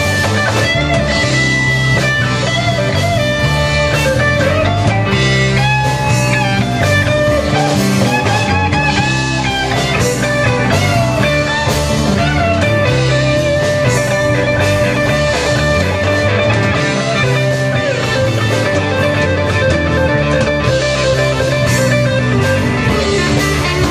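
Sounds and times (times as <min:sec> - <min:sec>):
electric guitar: 0:00.0 - 0:23.9
live rock band playing: 0:00.0 - 0:23.9.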